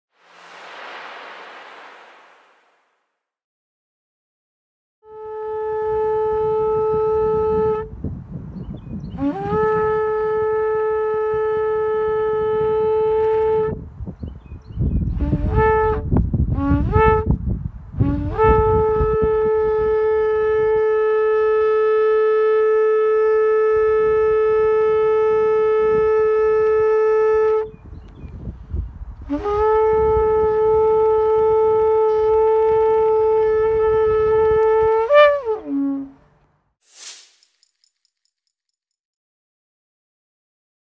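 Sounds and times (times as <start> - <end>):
shofar blasts: 5.1 - 7.9, 9.2 - 13.8, 15.1 - 17.4, 18.0 - 27.7, 29.3 - 36.2.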